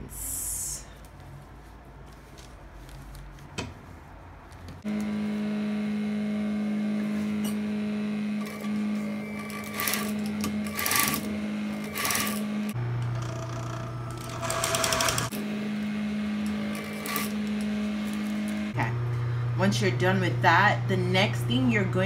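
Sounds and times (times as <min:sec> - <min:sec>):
sewing machine motor humming: 0:04.8 - 0:18.8
sewing machine stitching: 0:07.2 - 0:15.4, 0:16.4 - 0:18.6.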